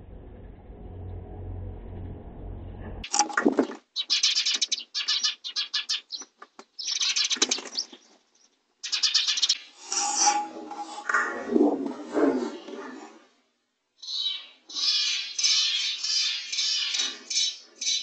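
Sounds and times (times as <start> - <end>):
low hum: 0.0 - 3.2, 9.8 - 13.2
myna harsh rasping calls: 9.8 - 13.2.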